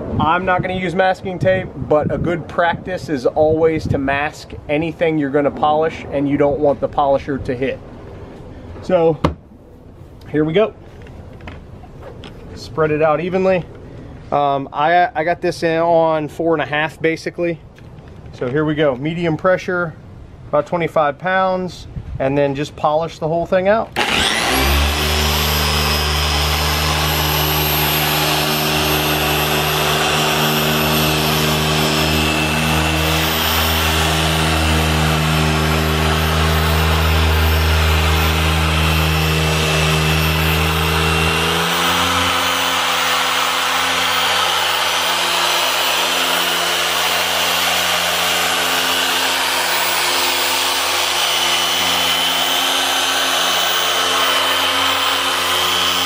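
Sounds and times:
polisher humming: 24.0 - 56.0.

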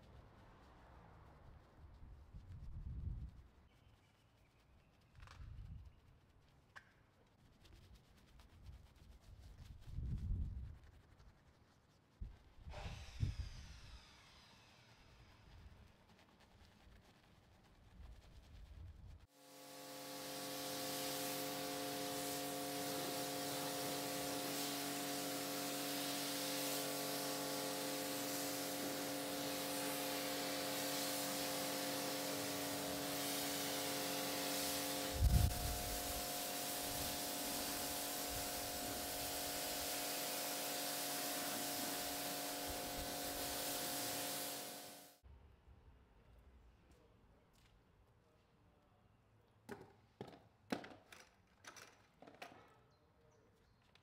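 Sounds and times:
water spray hissing: 12.7 - 45.2
pump motor humming: 19.4 - 45.1.

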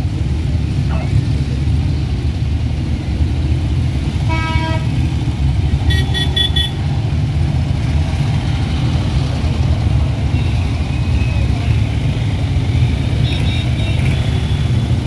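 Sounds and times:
vehicles driving past: 0.0 - 15.0
vehicle horn toot: 5.9 - 6.8.

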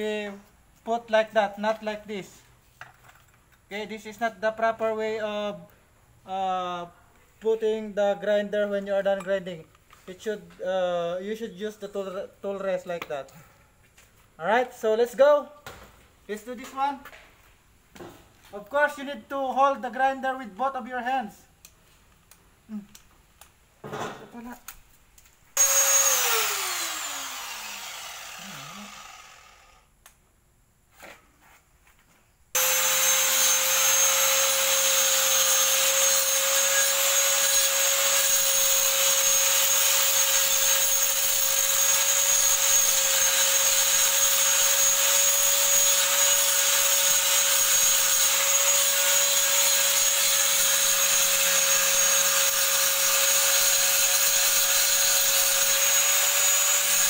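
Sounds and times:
grinder disc grinding steel: 25.6 - 29.8, 32.6 - 57.0
angle grinder whining: 25.6 - 29.9, 32.6 - 57.0.

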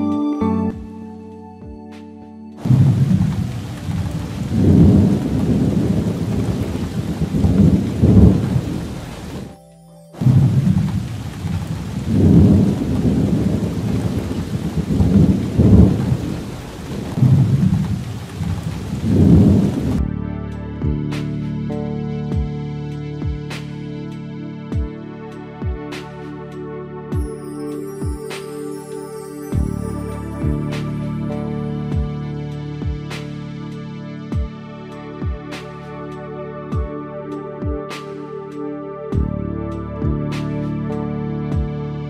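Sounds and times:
rolling thunder: 2.6 - 9.5, 10.2 - 20.0
heavy rain hissing: 2.6 - 9.6, 10.2 - 20.0.

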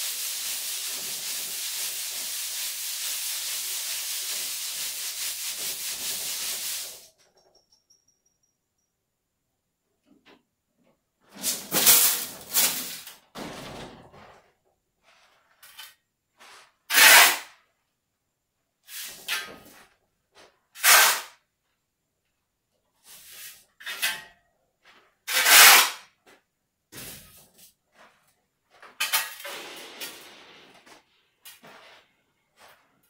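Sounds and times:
sand rasping through wire sieve: 0.0 - 7.1.

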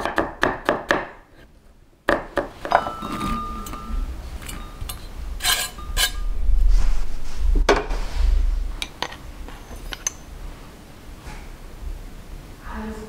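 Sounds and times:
dishes clinking: 2.6 - 6.4, 8.8 - 10.4
low rumble: 3.4 - 9.5.

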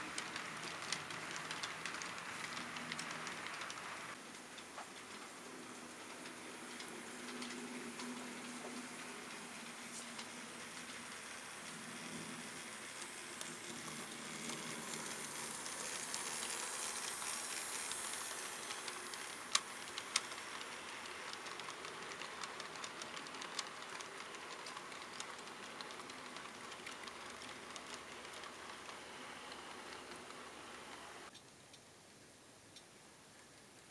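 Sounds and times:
wheels ticking over track: 0.0 - 31.4
model train hiss: 5.0 - 31.3.

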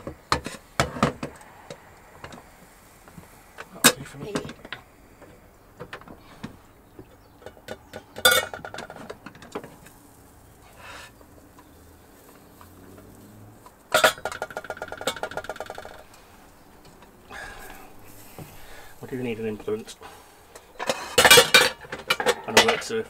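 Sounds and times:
metal rattle: 7.4 - 9.8, 13.9 - 23.0
metal pan clanking: 7.8 - 9.4, 13.9 - 16.0, 20.6 - 22.9.

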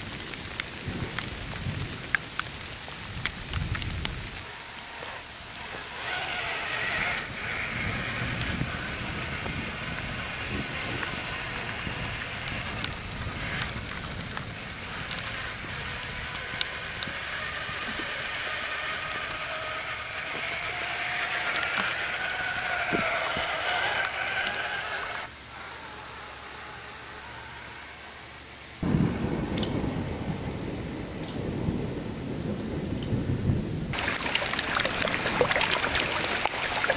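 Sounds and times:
toy truck electric motor whining: 4.4 - 28.4.

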